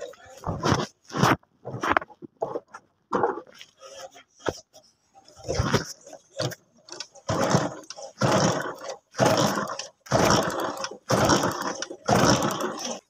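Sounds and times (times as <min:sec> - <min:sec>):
motorcycle kick-start cranking: 0:05.5 - 0:13.0.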